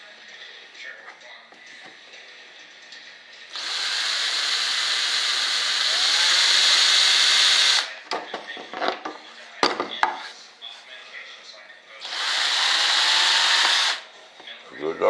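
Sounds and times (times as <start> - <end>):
electric drill boring into wood: 3.5 - 7.9, 12.0 - 14.0.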